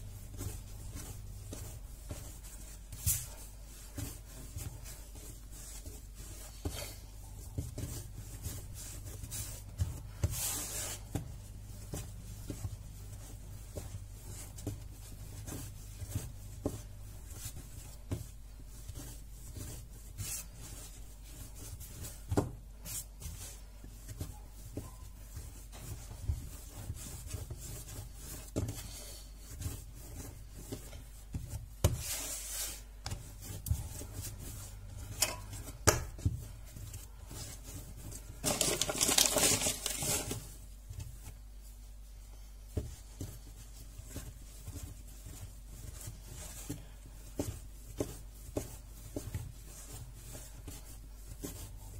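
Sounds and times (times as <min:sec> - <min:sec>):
dough rubbing and pressing: 0:00.0 - 0:51.9
rustling: 0:00.0 - 0:51.9
dough thumps on worktop: 0:22.2 - 0:22.6, 0:35.2 - 0:36.4.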